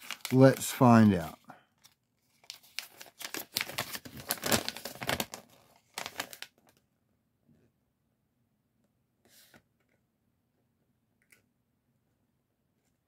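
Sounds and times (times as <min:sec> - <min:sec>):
paper crinkling rustles: 0:00.0 - 0:06.8.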